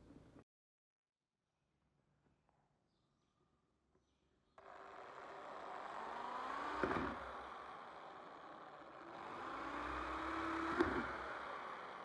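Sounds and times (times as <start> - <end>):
drill bit crunch: 4.6 - 12.0
electric drill boring into wood: 4.6 - 12.0.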